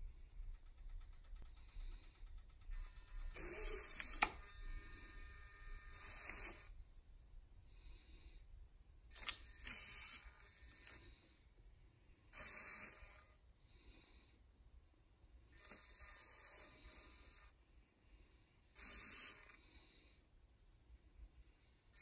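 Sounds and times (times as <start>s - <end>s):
servo motors whirring: 2.8s - 6.7s, 9.1s - 11.1s, 12.4s - 13.3s, 15.6s - 17.5s, 18.8s - 19.6s.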